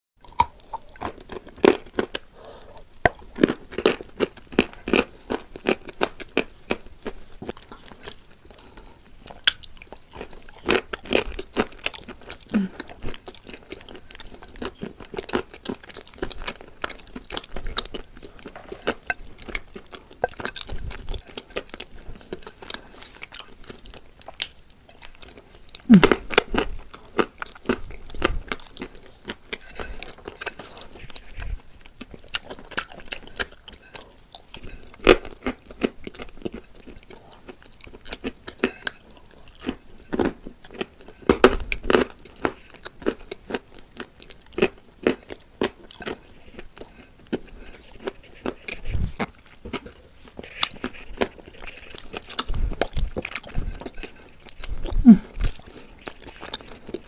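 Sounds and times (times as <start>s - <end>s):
wet mouth sounds: 0.2s - 3.6s, 11.8s - 13.6s, 25.8s - 28.8s, 45.0s - 57.0s
clay crunching when bitten: 25.8s - 28.8s.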